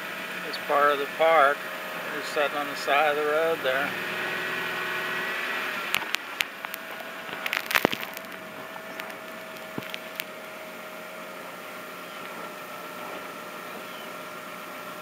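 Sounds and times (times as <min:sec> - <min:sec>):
sharp clicks and knocks: 0:05.9 - 0:10.3.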